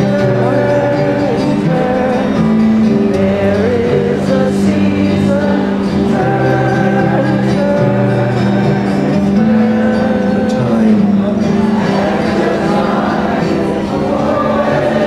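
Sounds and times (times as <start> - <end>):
twelve-string acoustic guitar chords: 0.0 - 15.0
wordless melody voice: 0.0 - 15.0.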